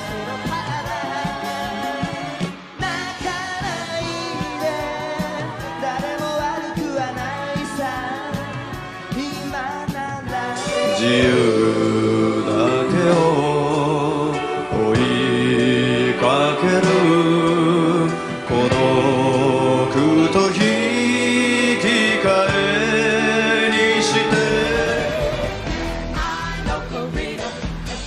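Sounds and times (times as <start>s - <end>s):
man singing pop song with band: 0.0s - 28.0s.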